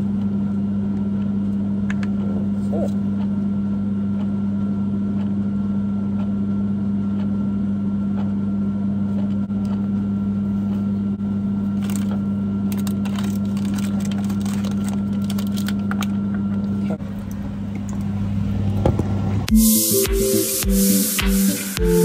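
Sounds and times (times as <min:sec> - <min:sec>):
low electrical hum: 0:00.0 - 0:22.0
plastic packaging crinkling: 0:11.7 - 0:16.4.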